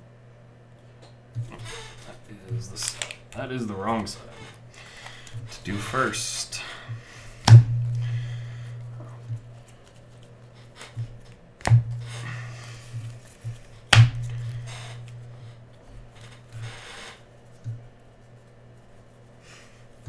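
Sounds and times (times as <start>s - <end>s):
cards rustling: 1.8s - 5.8s
low hum: 7.4s - 16.8s.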